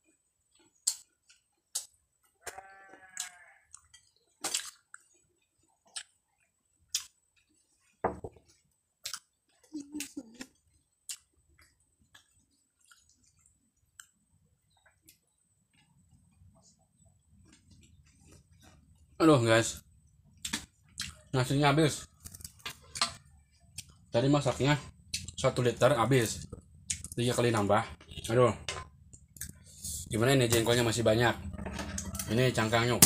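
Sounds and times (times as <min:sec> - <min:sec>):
chewing: 0:00.5 - 0:16.5, 0:20.4 - 0:21.3
quavering bleat: 0:02.4 - 0:03.8.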